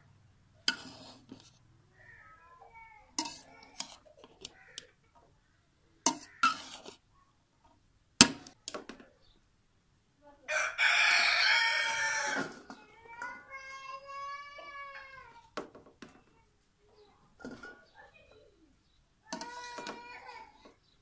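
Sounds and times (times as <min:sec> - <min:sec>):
metal spatula scraping pot: 0:00.6 - 0:02.4, 0:03.1 - 0:05.0, 0:06.0 - 0:07.0
rooster crowing: 0:10.5 - 0:12.5.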